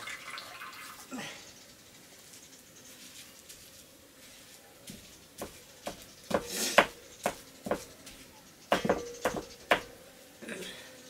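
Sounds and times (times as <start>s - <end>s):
pestle pounding in stone mortar: 5.4s - 7.9s, 8.7s - 9.9s.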